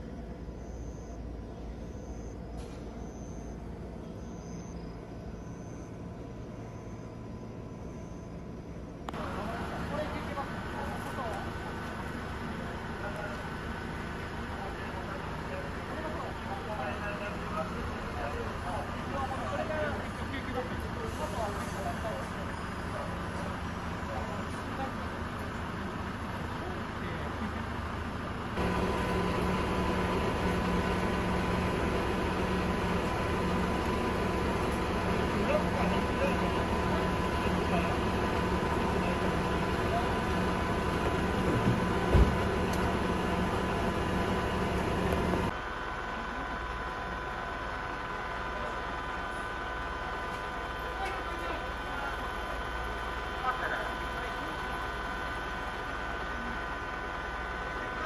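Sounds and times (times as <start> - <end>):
idling vehicle engines hum: 0.0 - 58.0
stopped train rumbling: 0.0 - 58.0
faint high chirps: 0.5 - 8.9.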